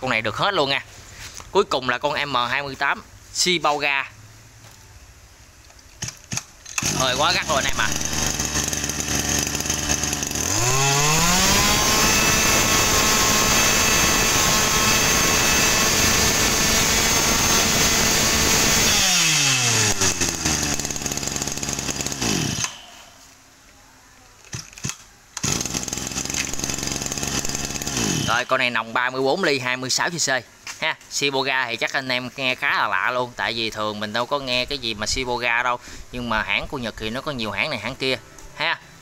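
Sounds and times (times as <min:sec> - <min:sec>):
brush cutter engine revving: 0:06.0 - 0:23.0, 0:24.8 - 0:28.6
steady running noise: 0:07.7 - 0:10.7.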